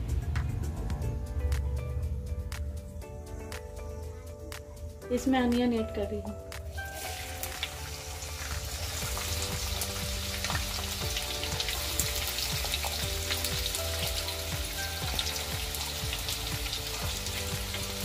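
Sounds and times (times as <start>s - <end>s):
onions sizzling in hot oil: 6.7s - 18.0s.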